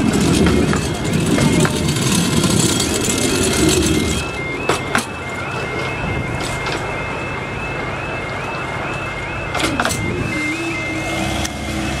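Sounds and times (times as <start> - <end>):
miniature train rumbling: 0.0 - 12.0
tone sweeping down: 2.3 - 12.0
electronic two-note warning tone: 3.0 - 12.0.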